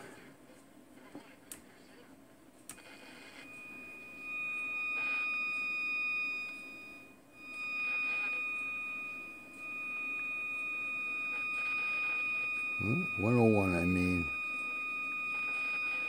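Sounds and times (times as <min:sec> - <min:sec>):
high-pitched radio test tone: 0:12.6 - 0:14.4.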